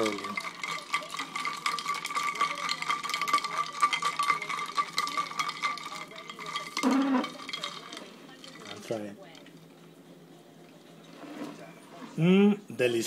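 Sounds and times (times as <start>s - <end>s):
ice cubes clinking in glass jar: 0.0s - 9.7s.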